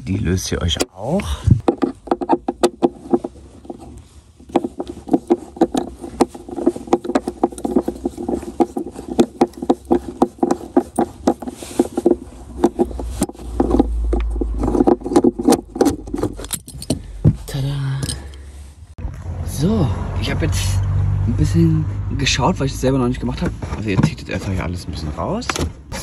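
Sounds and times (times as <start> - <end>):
low rumble of handling: 1.3 - 19.4.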